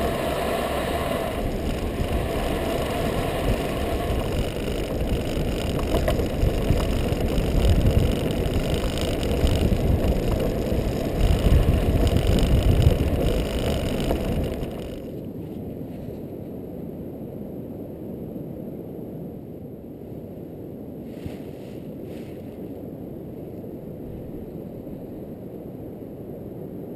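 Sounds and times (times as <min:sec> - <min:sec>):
wind rushing: 0:00.0 - 0:15.1
tyres rumbling on sand: 0:00.0 - 0:15.2.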